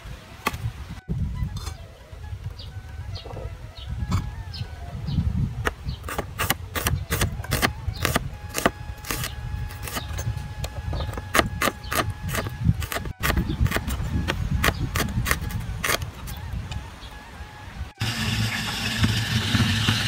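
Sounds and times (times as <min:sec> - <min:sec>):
knife slicing onions: 0:06.1 - 0:10.0.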